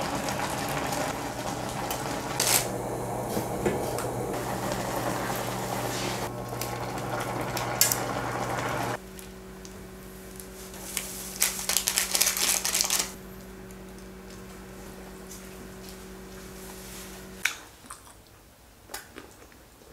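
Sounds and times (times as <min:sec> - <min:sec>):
water boiling hard: 0:00.0 - 0:13.2
powder shaken from plastic packet: 0:11.3 - 0:13.2.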